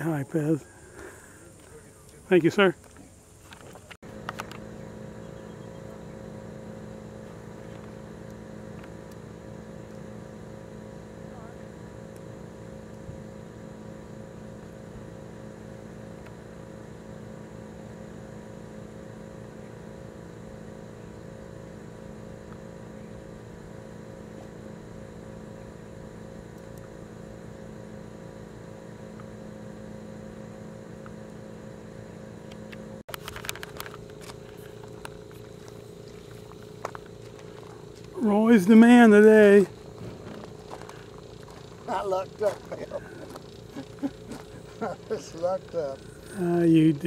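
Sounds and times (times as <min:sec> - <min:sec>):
mechanical hum: 0:00.0 - 0:47.0.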